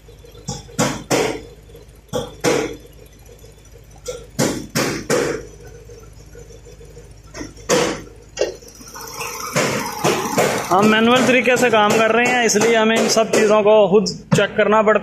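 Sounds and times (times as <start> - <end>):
steady low hum: 0.0 - 15.0
sharp knocks: 0.4 - 2.9, 4.1 - 5.5, 7.3 - 8.6, 9.4 - 13.7.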